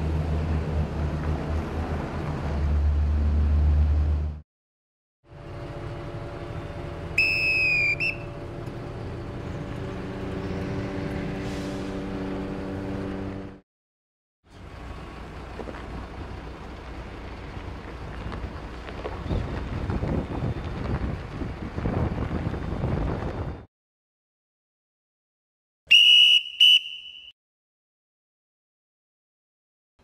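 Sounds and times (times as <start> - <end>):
steady engine hum: 0.0 - 4.4, 5.3 - 13.6, 14.5 - 23.7
whistle signal blasts: 7.2 - 8.3, 25.9 - 27.4
wind noise on microphone: 19.0 - 23.7.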